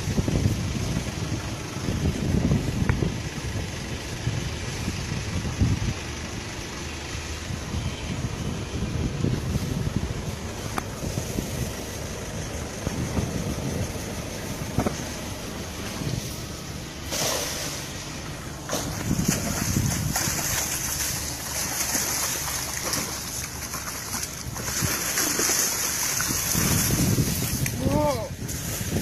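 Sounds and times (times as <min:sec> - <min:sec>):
wind rumbling on microphone: 0:00.0 - 0:29.0
cast net splashing water: 0:17.0 - 0:27.8.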